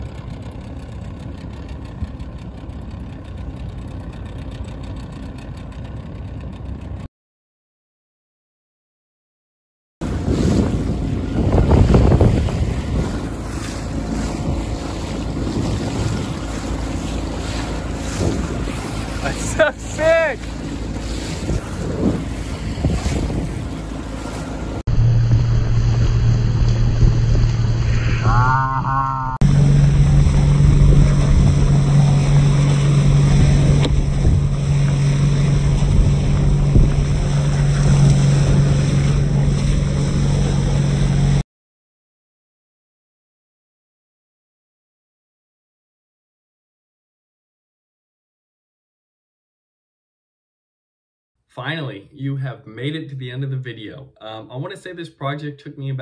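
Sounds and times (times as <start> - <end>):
outboard motor hum: 0.0 - 7.1, 10.0 - 41.4
water splashing along hull: 0.0 - 7.1, 10.0 - 41.4
wind buffeting microphone: 10.0 - 28.3, 29.5 - 40.9.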